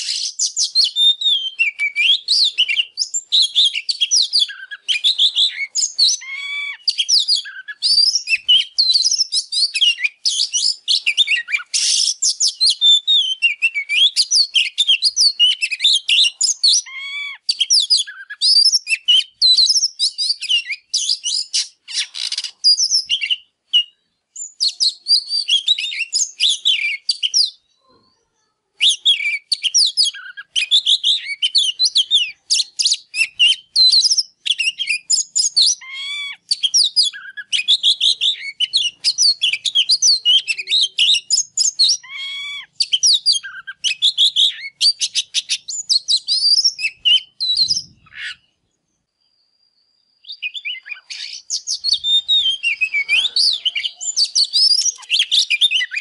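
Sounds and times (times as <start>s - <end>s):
songbird whistling and trilling: 0.0s - 27.8s, 28.8s - 56.0s.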